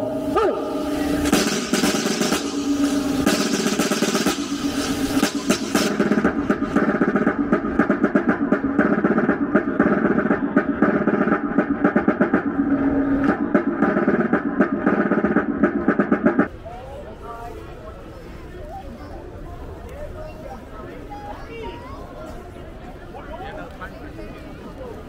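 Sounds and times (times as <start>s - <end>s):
steady tones: 0.0s - 16.5s
snare drum rolls: 1.1s - 16.5s.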